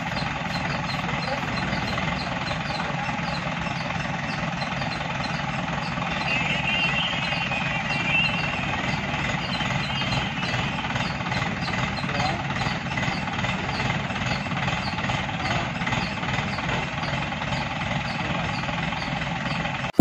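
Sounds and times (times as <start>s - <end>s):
diesel engine knocking: 0.0s - 20.0s
wavering high whine: 0.6s - 13.0s.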